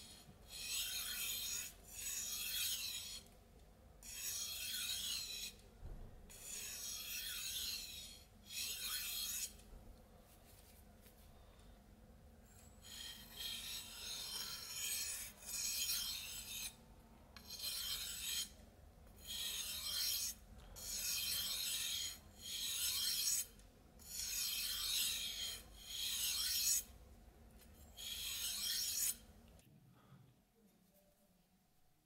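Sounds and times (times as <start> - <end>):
blade scraping on whetstone: 0.0 - 3.3, 4.0 - 5.6, 6.3 - 9.6, 12.6 - 16.8, 17.4 - 18.6, 19.2 - 26.9, 27.8 - 29.2.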